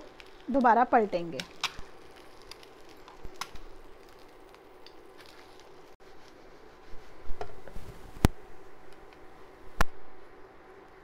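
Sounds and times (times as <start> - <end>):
eggs frying in oil: 0.0 - 6.0.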